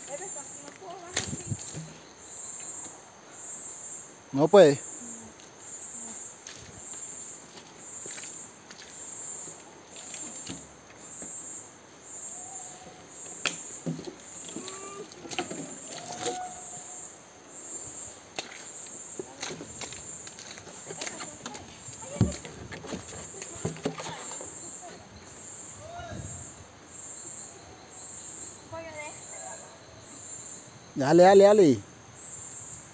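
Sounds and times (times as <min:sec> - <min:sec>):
insects buzzing: 0:00.0 - 0:32.9
footsteps on muddy trail: 0:00.6 - 0:02.9, 0:06.4 - 0:11.1, 0:13.8 - 0:16.6, 0:18.2 - 0:25.0.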